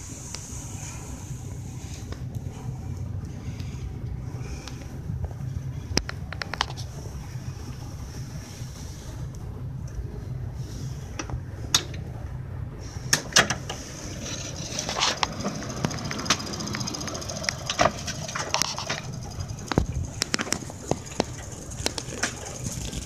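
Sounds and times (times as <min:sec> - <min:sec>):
train wheels rumbling: 0:00.0 - 0:23.0
wheels clacking over rails: 0:13.1 - 0:23.0.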